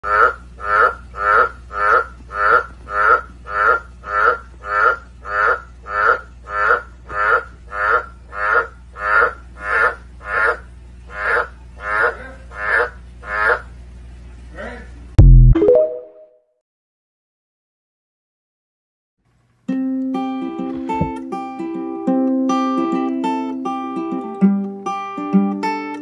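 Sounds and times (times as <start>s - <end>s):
frog croaking: 0.0s - 13.7s.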